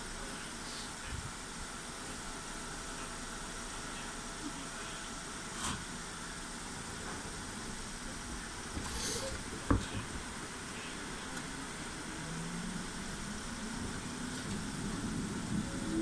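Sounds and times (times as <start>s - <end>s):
air hiss: 8.8s - 9.5s
train motor hum rising: 10.4s - 16.0s.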